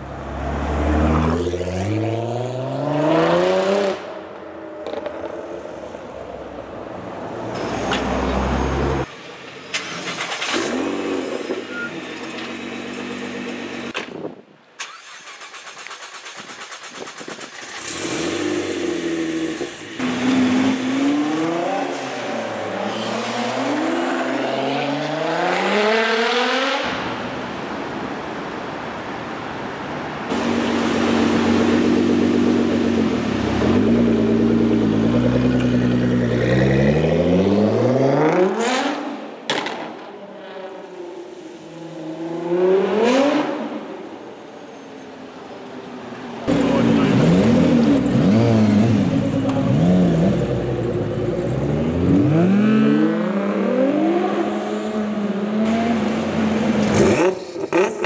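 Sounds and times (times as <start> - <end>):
car engine revving: 46.5 - 58.0.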